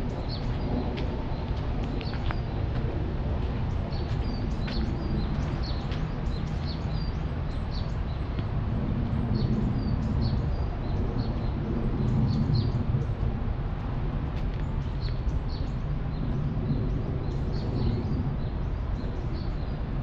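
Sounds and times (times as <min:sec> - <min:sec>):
small birds chirping: 0:00.0 - 0:13.1.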